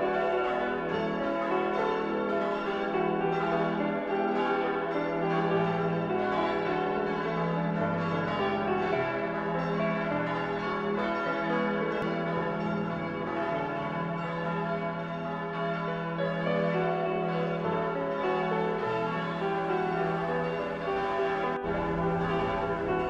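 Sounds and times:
bells ringing: 0.0s - 23.0s
sustained tones: 16.1s - 23.0s.

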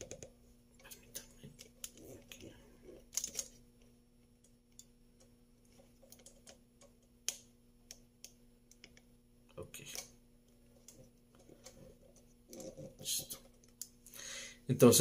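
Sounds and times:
faint clicks and taps: 0.0s - 14.1s
steady low hum: 0.0s - 15.0s.

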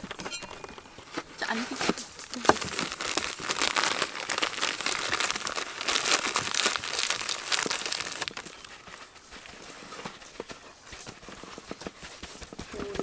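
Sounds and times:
salt grains crunching: 0.0s - 9.0s
plastic bag crinkling: 0.0s - 9.7s.

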